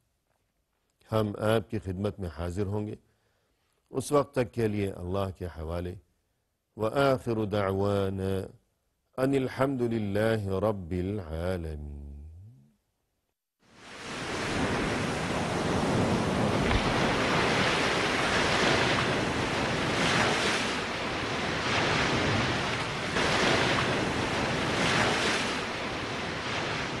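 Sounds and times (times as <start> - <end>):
rushing surf-like noise: 13.7 - 27.0.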